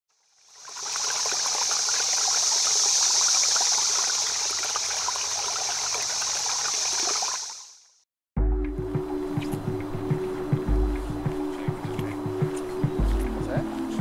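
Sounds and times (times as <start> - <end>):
stream water rushing: 0.4 - 7.8.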